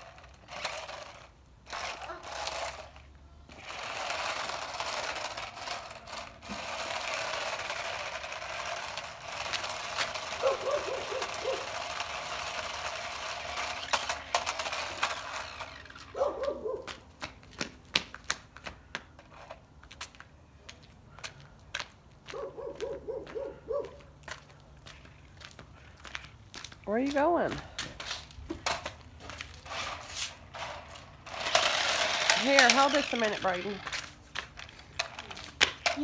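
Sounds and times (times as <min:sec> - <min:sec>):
toy car electric motor: 0:00.0 - 0:16.5, 0:29.6 - 0:36.0
wheels rolling over concrete: 0:00.0 - 0:20.3, 0:24.2 - 0:36.0.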